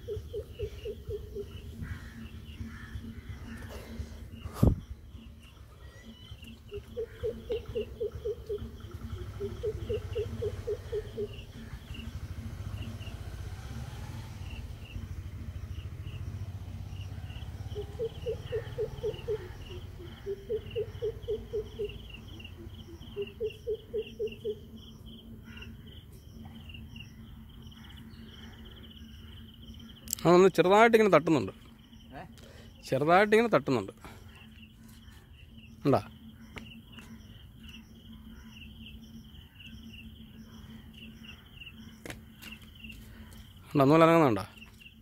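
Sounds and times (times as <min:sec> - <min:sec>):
insects chirping: 0:00.0 - 0:45.0
low pulsed call: 0:17.7 - 0:30.1.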